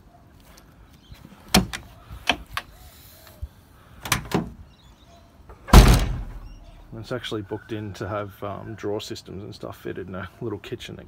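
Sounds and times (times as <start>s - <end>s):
door latch clicks and knocks: 5.7s - 6.5s
heavy door thud: 5.7s - 6.6s.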